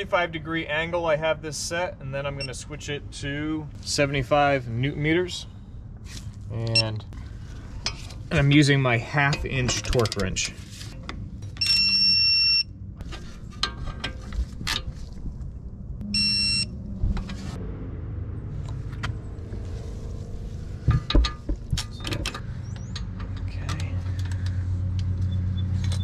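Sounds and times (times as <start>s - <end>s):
digital torque wrench beeping: 11.6s - 12.7s, 16.0s - 16.7s.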